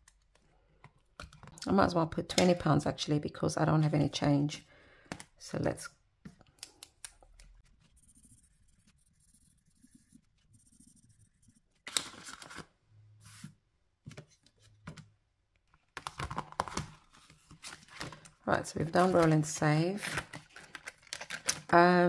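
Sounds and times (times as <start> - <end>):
paper rustling: 11.7 - 13.5, 16.2 - 21.7.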